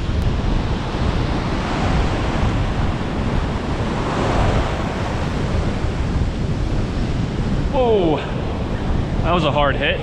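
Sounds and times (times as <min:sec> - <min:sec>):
ocean surf breaking: 0:00.0 - 0:10.0
wind buffeting microphone: 0:00.0 - 0:10.0.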